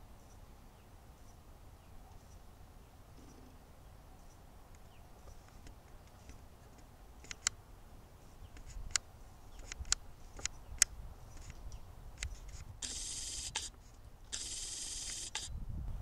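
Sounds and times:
sharp short clicks: 0:07.2 - 0:07.6, 0:12.2 - 0:15.5.

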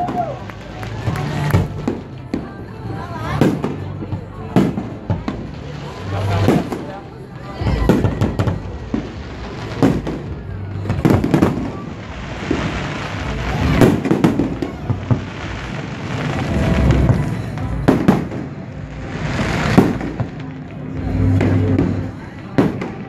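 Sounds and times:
fireworks bursting with sharp bangs: 0:00.0 - 0:23.0.

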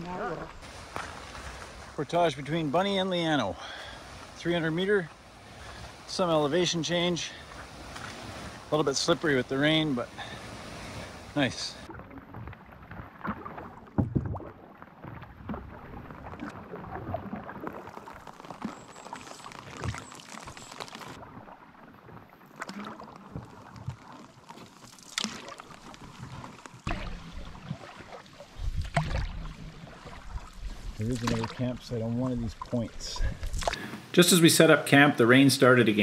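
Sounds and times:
paddle strokes splashing: 0:00.0 - 0:34.2
water washing along hull: 0:00.0 - 0:34.2
water dripping off paddle: 0:11.9 - 0:31.6, 0:32.5 - 0:34.0.

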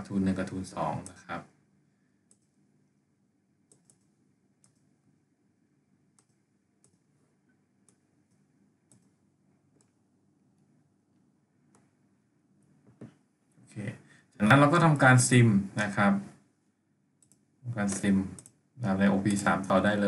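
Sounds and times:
faint computer mouse clicks: 0:02.3 - 0:02.6, 0:03.7 - 0:04.9, 0:06.2 - 0:07.1, 0:07.8 - 0:10.0, 0:17.2 - 0:18.6.

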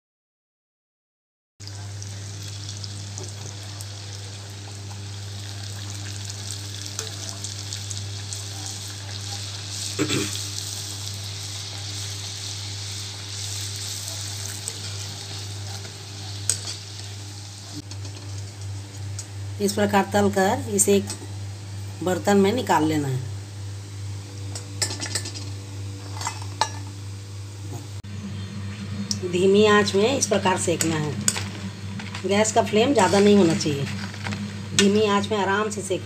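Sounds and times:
food sizzling in hot oil: 0:01.6 - 0:18.6.

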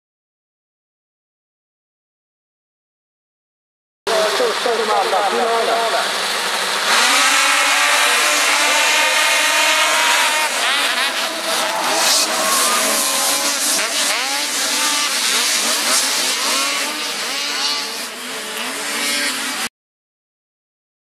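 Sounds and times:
snowmobile engines revving: 0:04.1 - 0:19.7.

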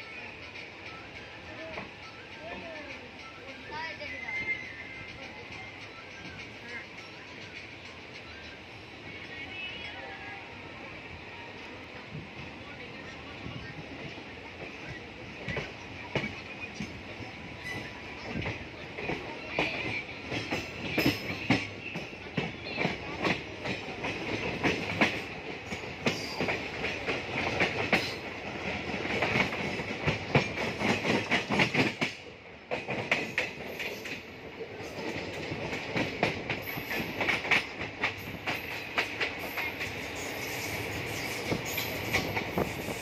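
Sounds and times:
train rumble: 0:00.0 - 0:43.0
train wheels clacking over rail joints: 0:15.4 - 0:43.0.

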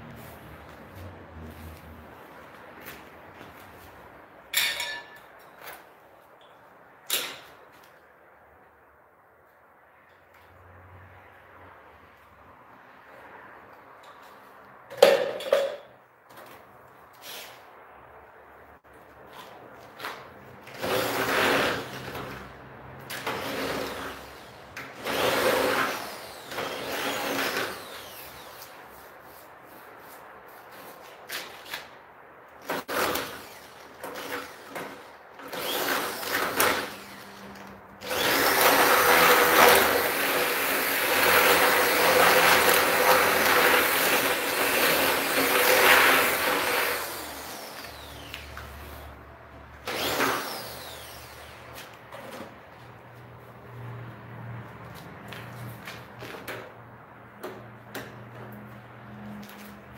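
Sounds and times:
drill clicks: 0:32.7 - 0:48.9, 0:49.8 - 0:52.3
electric drill drilling into plastic: 0:32.8 - 0:37.4, 0:38.0 - 0:48.7, 0:49.8 - 0:51.6.

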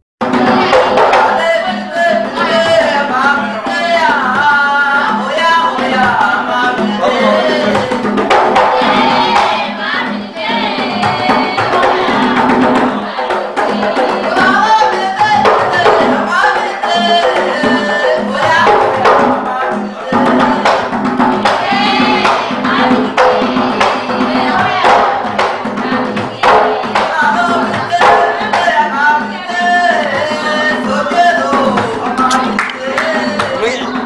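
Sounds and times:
hand drum beat: 0:00.2 - 0:34.0
people singing: 0:00.2 - 0:34.0.

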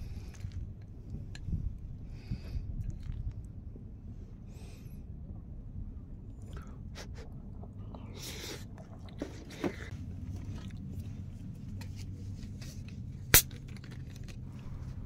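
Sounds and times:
chewing: 0:02.8 - 0:03.5, 0:06.4 - 0:11.4.

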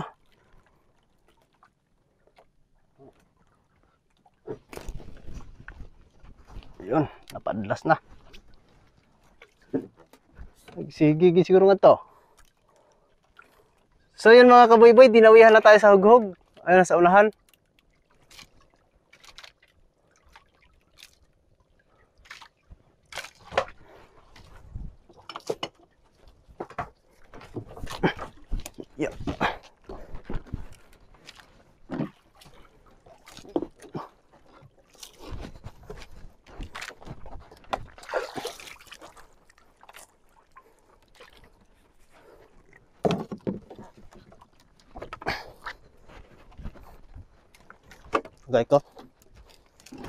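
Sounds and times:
knocks and thumps on wooden boat: 0:09.5 - 0:11.0, 0:24.4 - 0:32.6, 0:35.0 - 0:38.9, 0:43.0 - 0:45.4, 0:46.2 - 0:50.0
water dripping and splashing: 0:16.2 - 0:24.5, 0:25.1 - 0:45.8.

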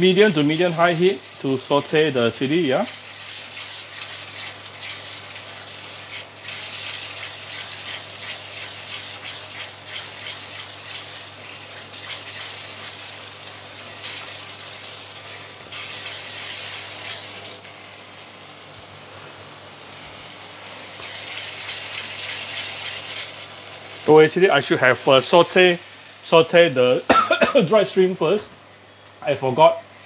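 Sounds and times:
chili paste sizzling in oil: 0:00.0 - 0:18.1, 0:20.6 - 0:24.2.

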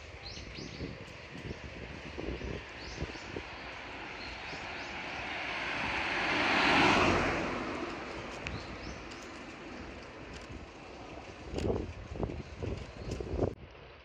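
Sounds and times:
car passing by: 0:02.6 - 0:11.4.

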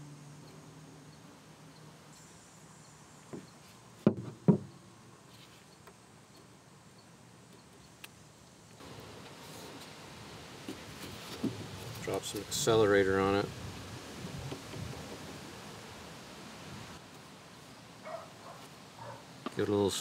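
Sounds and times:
plastic bottle knocking on bench: 0:04.1 - 0:04.7.

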